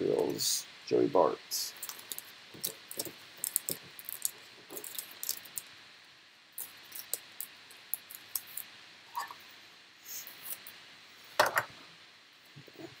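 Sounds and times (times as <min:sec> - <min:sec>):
cards and plastic rustling: 0:01.7 - 0:05.7.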